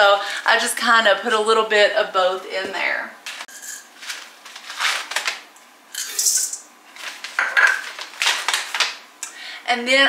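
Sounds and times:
nibs rattling in metal bowl: 6.0s - 8.8s.

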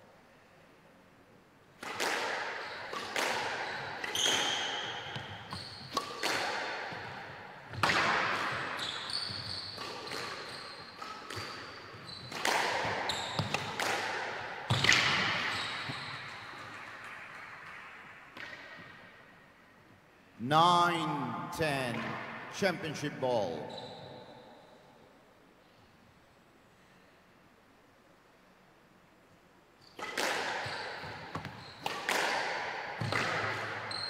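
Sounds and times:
ball hitting walls: 1.8s - 19.0s, 30.0s - 33.9s
racquet striking squash ball: 1.8s - 19.2s, 29.9s - 34.0s
shoes squeaking on wooden floor: 4.1s - 6.0s, 8.8s - 9.8s, 10.4s - 12.3s.

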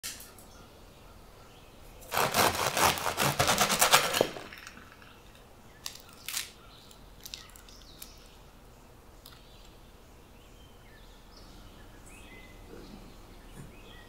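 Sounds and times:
bread crust crackling under knife: 2.1s - 5.1s.

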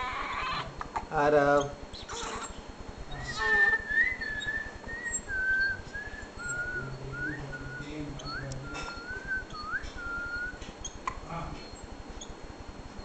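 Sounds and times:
baby crying: 3.2s - 4.0s
person whistling a slow tune: 3.5s - 10.6s.

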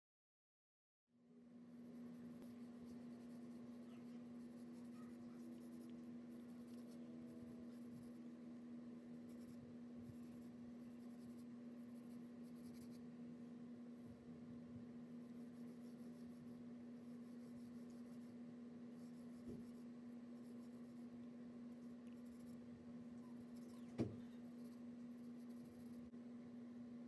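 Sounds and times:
low hum: 1.2s - 27.0s
pencil scratching on paper: 1.8s - 8.2s, 9.2s - 13.1s, 15.1s - 18.4s, 19.0s - 22.6s, 23.2s - 26.1s.

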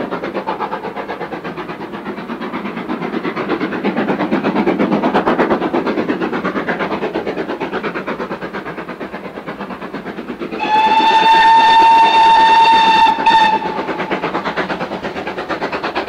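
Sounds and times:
steam locomotive exhaust beating: 0.0s - 16.0s
steam whistle blast: 10.6s - 14.1s.

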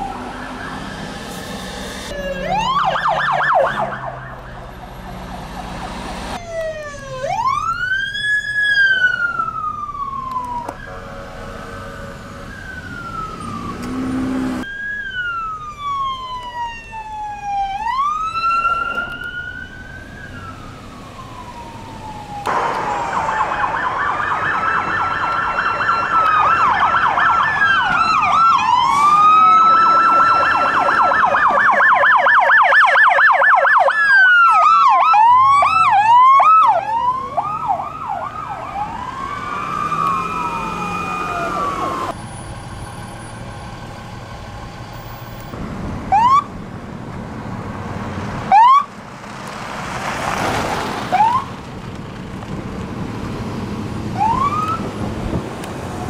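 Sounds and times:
electronic sirens wailing and yelping: 0.0s - 1.3s, 2.0s - 42.2s, 46.1s - 46.5s, 48.5s - 48.9s, 54.2s - 54.9s.

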